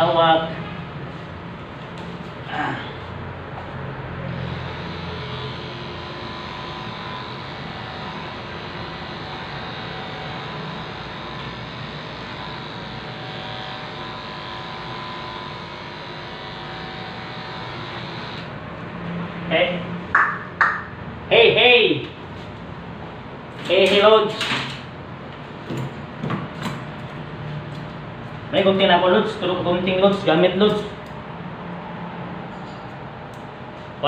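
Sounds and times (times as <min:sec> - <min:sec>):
electric pet clippers buzzing: 0:04.3 - 0:18.6.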